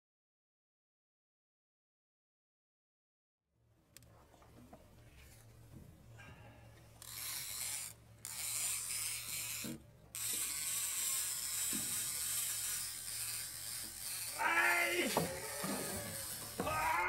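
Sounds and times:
fishing reel drag ratcheting: 0:07.0 - 0:17.0.

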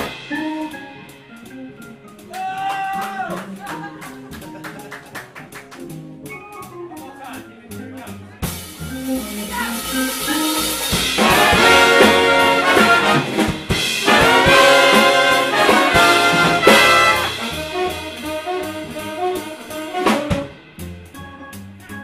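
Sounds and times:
big band jazz: 0:00.0 - 0:22.0
brass ensemble passages: 0:08.9 - 0:21.5.

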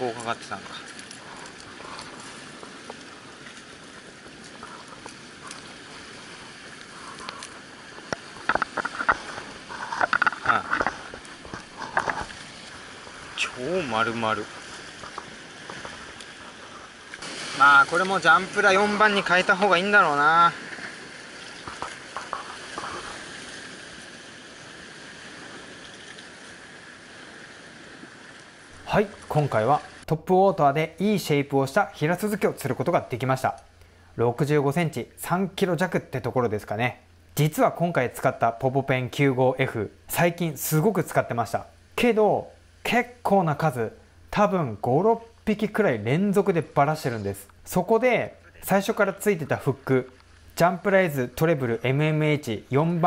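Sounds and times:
sea surf on rocks: 0:00.0 - 0:53.0.

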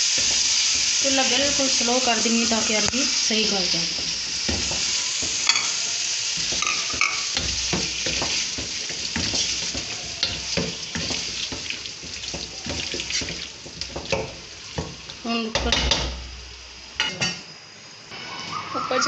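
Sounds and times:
masala sizzling: 0:00.0 - 0:19.0
wooden spoon scraping a pot: 0:03.9 - 0:15.2.

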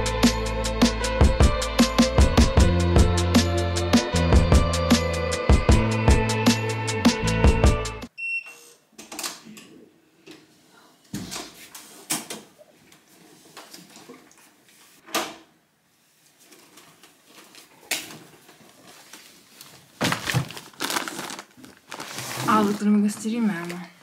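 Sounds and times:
tote bag rustling: 0:18.6 - 0:23.8.

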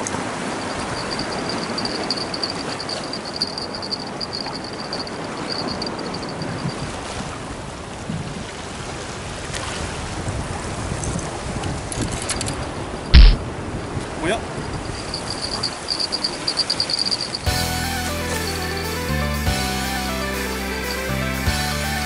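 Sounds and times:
small waves washing on shore: 0:00.0 - 0:17.5
wind on microphone: 0:00.4 - 0:17.5
high pulsing ring: 0:00.6 - 0:06.8, 0:14.8 - 0:19.2.

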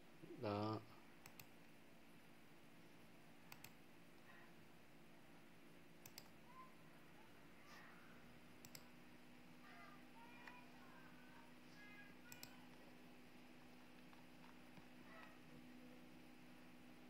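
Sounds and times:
computer mouse clicks: 0:01.2 - 0:01.6, 0:03.5 - 0:03.8, 0:06.0 - 0:06.4, 0:08.6 - 0:08.9, 0:12.2 - 0:12.8.

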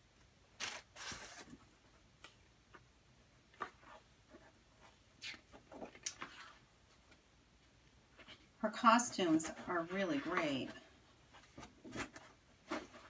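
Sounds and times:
paper pages rustling: 0:03.5 - 0:07.2.

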